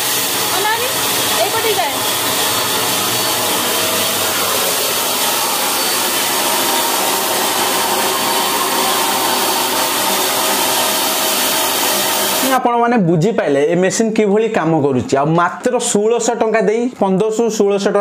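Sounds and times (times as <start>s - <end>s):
paint sprayer blowing air: 0.0s - 12.6s.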